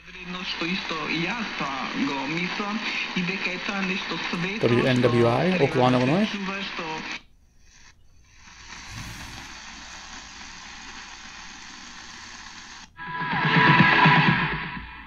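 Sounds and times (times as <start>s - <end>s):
radio station playing: 0.0s - 7.2s, 8.7s - 9.7s
radio static hiss: 0.0s - 13.0s.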